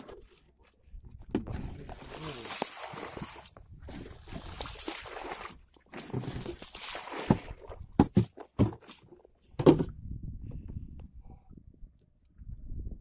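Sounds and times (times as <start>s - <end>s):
fish thumping on boat deck: 7.2s - 9.0s.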